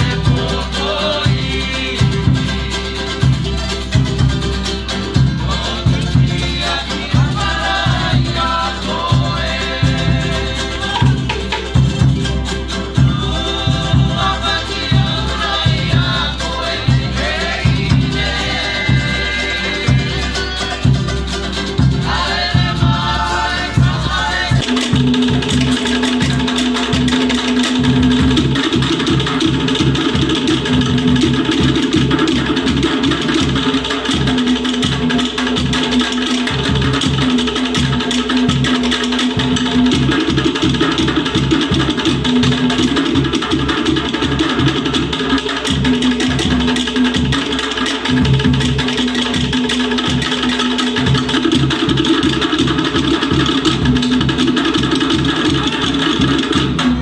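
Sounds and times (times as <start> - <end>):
voices singing: 0.0 - 4.0, 5.0 - 26.2
drum beat: 0.0 - 57.0
strummed guitars and ukulele: 0.0 - 57.0.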